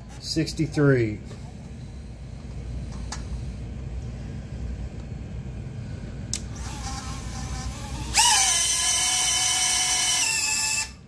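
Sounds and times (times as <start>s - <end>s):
drone motors whining: 6.5s - 11.0s.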